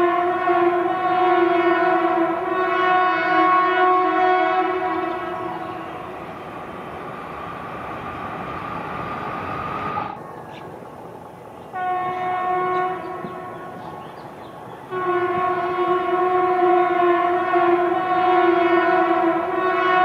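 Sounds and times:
locomotive horn blast: 0.0 - 6.6, 11.7 - 13.9, 14.9 - 20.0
passing train rolling noise: 0.0 - 20.0.

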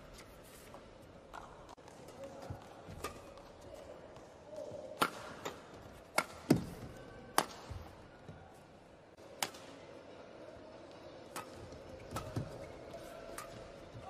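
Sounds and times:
rackets hitting shuttlecock: 1.3 - 3.5, 4.5 - 7.9, 9.3 - 9.8, 11.3 - 14.0.

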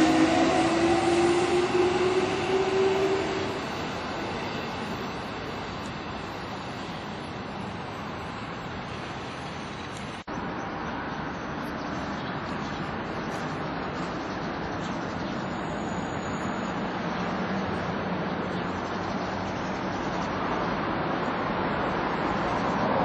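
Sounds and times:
electric train motor whine: 0.0 - 10.2.

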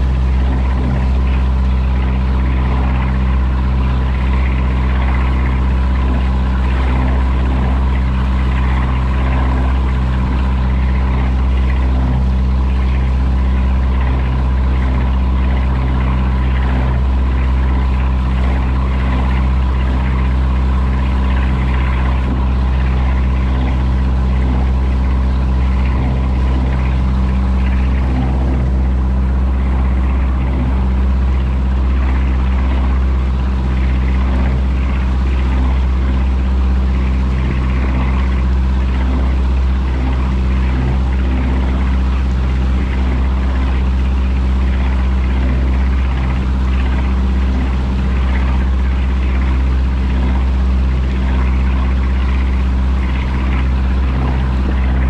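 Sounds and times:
boat engine humming: 0.0 - 55.0
water rushing and splashing: 0.0 - 55.0.

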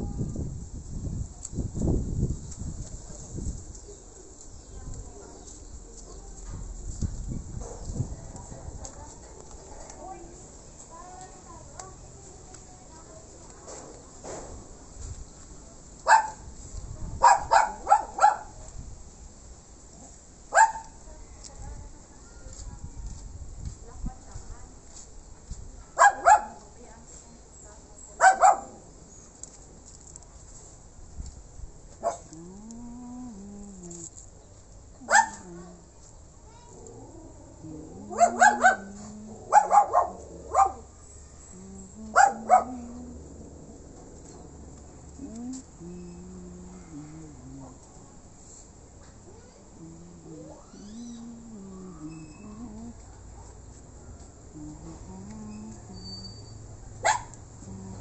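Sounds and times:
dog barking: 16.1 - 16.4, 17.2 - 18.6, 20.5 - 21.0, 26.0 - 26.6, 28.2 - 28.8, 32.0 - 32.3, 35.1 - 35.4, 38.1 - 40.9, 42.1 - 42.9, 56.9 - 57.4.

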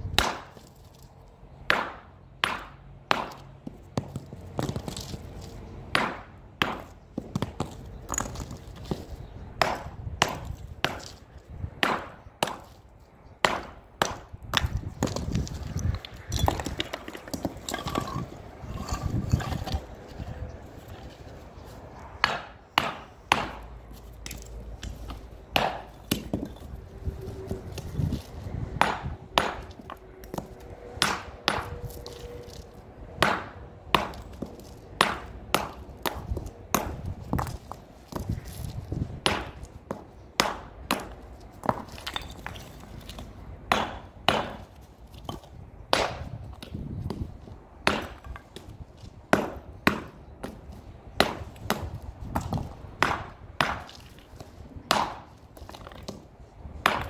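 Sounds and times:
hammer striking stone: 1.7 - 5.1, 5.9 - 9.0, 22.2 - 23.6, 24.2 - 26.7, 28.8 - 32.2, 43.7 - 44.7.

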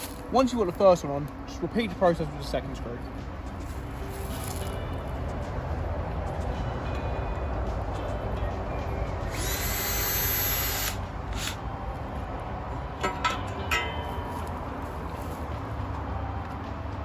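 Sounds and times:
power drill driving a screw: 9.3 - 11.6.

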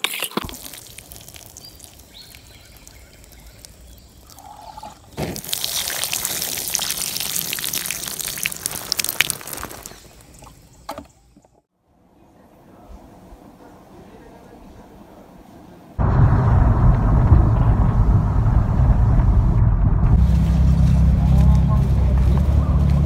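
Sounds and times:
water splashing onto wet soil: 0.4 - 4.4, 5.1 - 10.6.

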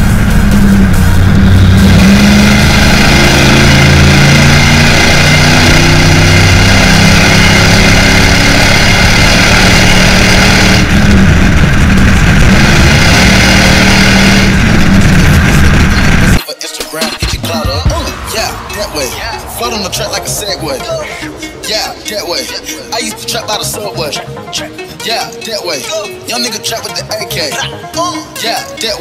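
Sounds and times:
truck exhaust accelerating: 0.0 - 16.4, 17.2 - 24.8.

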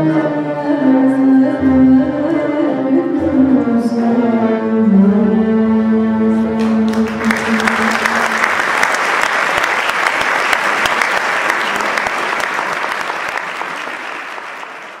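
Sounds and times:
audience applauding: 6.6 - 15.0.

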